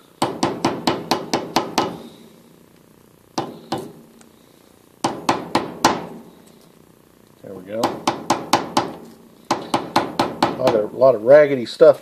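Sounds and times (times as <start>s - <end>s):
mallet tapping tape on metal: 0.2s - 2.0s, 3.4s - 4.0s, 5.0s - 6.2s, 7.8s - 10.9s.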